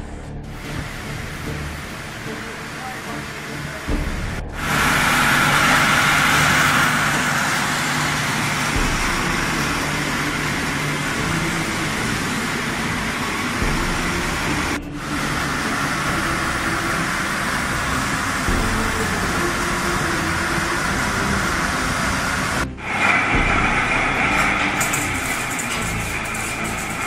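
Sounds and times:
machinery hum: 0.0 - 27.0.

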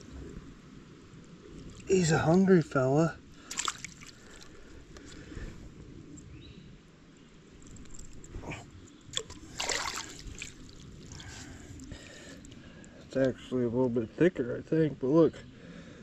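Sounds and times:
creek water trickling: 0.0 - 5.5, 7.6 - 13.6
short water splashes: 3.4 - 4.6, 9.1 - 12.3.

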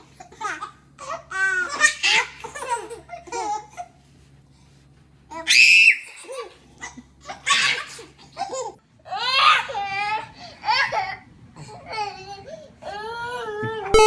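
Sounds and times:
babies laughing: 0.0 - 4.0, 6.0 - 12.5.

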